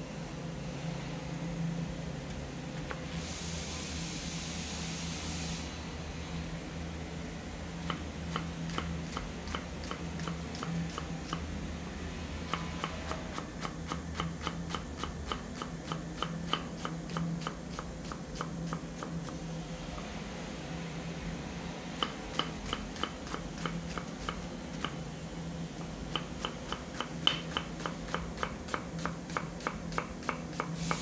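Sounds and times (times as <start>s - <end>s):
steady low hum: 0.0s - 31.0s
knife chopping on wooden board: 22.0s - 25.0s, 26.1s - 31.0s.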